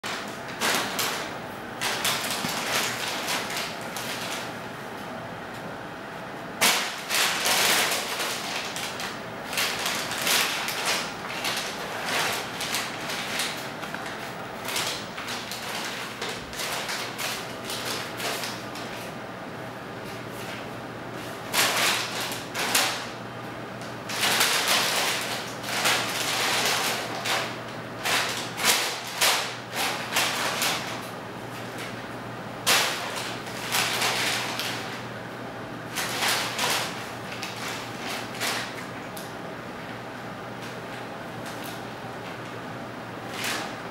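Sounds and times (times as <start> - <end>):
paper bag crinkling and scraping: 0.1 - 4.5, 6.6 - 19.2, 21.5 - 23.1, 24.1 - 31.9, 32.7 - 35.0, 35.9 - 38.9, 43.3 - 43.9.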